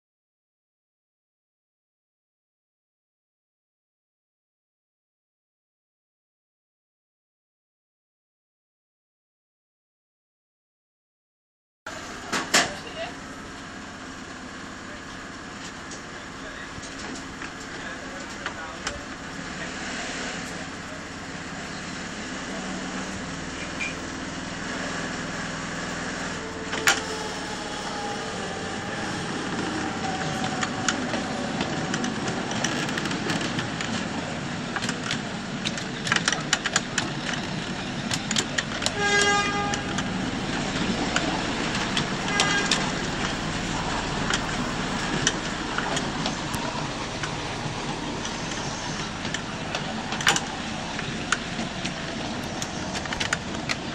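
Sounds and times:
miniature train rumbling: 11.9 - 53.9
wheels clicking on rails: 11.9 - 53.9
train whistle toot: 38.9 - 40.1, 42.2 - 43.1.

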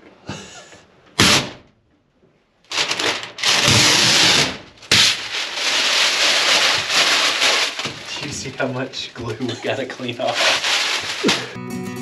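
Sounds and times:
floor covering tearing: 2.7 - 11.6.

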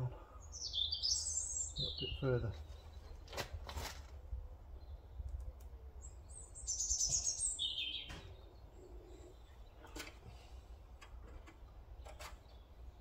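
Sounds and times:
songbird twittering: 0.4 - 3.2, 6.0 - 9.8.

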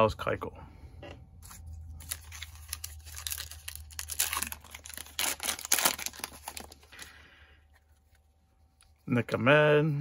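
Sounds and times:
plastic wrapper tearing and crumpling: 1.9 - 7.1.

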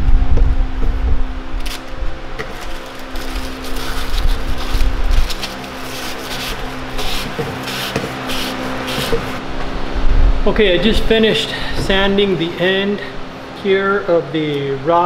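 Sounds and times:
sandpaper scratching plastic pipe: 2.4 - 9.4.

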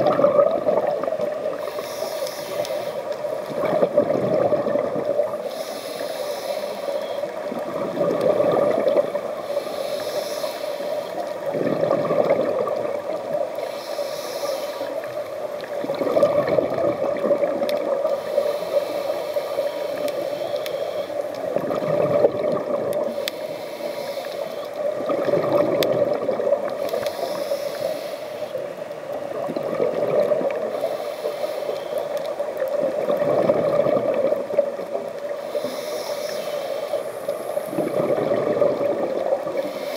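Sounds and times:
exhaust bubbles gurgling: 0.0 - 1.8, 3.4 - 5.4, 7.5 - 9.4, 11.4 - 13.6, 15.0 - 18.2, 21.5 - 23.2, 24.8 - 27.1, 29.3 - 30.8, 32.5 - 35.1, 37.6 - 39.6
regulator inhale hiss: 1.4 - 3.7, 5.3 - 7.5, 9.2 - 11.6, 13.4 - 15.9, 18.0 - 21.5, 23.0 - 24.9, 26.8 - 28.8, 30.6 - 32.6, 35.3 - 39.9.

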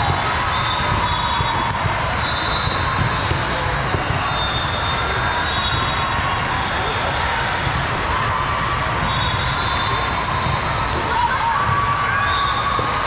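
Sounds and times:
volleyballs struck and bouncing: 0.0 - 4.3, 8.8 - 13.0
crowd noise: 0.0 - 13.0.

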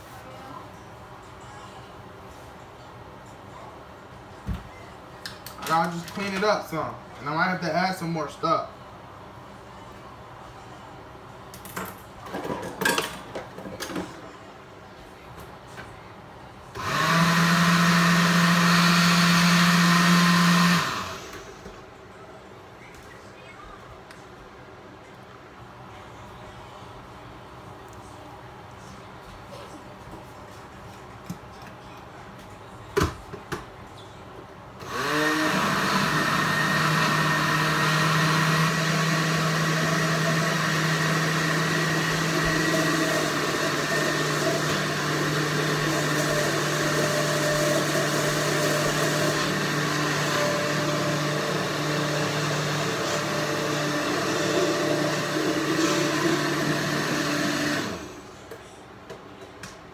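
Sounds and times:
blender motor running: 16.8 - 21.5, 34.8 - 58.3.

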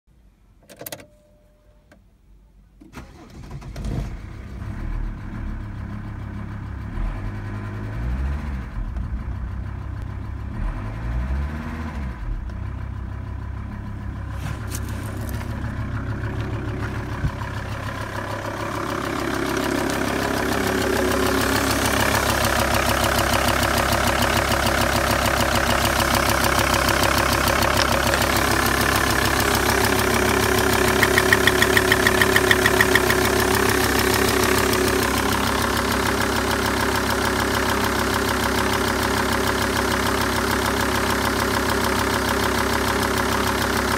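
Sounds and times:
engine starter click: 2.8 - 4.2, 30.8 - 33.4
diesel engine revving: 3.0 - 12.8, 13.4 - 41.7
diesel engine idling: 12.3 - 43.9.

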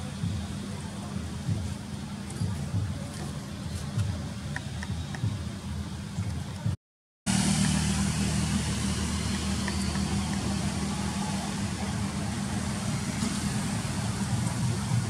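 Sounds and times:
vehicle engine idling: 0.0 - 15.0
outdoor hiss: 7.3 - 15.0.

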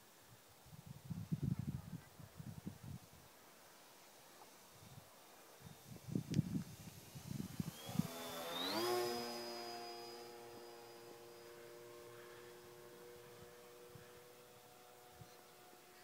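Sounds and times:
model airplane motor flying by: 5.6 - 16.0.

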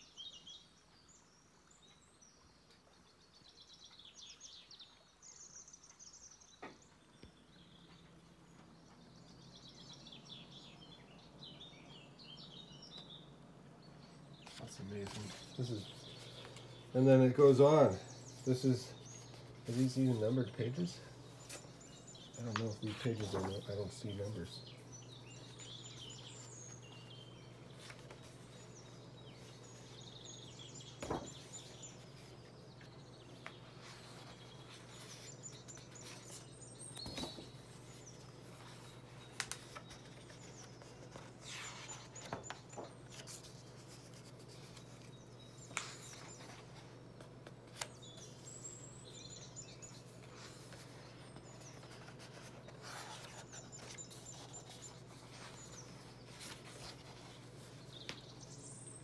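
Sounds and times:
songbird chirping: 0.0 - 59.0
paper pages rustling: 14.4 - 58.6.

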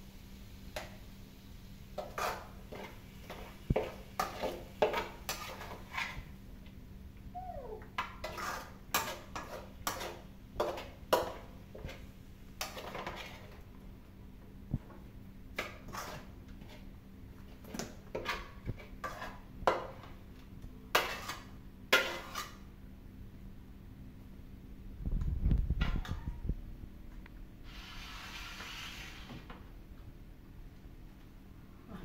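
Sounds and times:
metal spatula scraping a wok: 2.0 - 6.2, 8.2 - 11.8, 12.6 - 13.6, 15.6 - 16.9, 18.1 - 19.4, 20.9 - 22.6, 27.7 - 29.4.

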